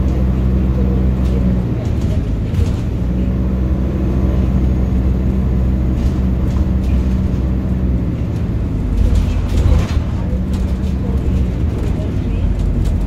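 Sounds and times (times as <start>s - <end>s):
bus drivetrain drone: 0.0s - 13.0s
road noise: 0.0s - 13.0s
faint rattles: 1.1s - 3.5s, 5.7s - 13.0s.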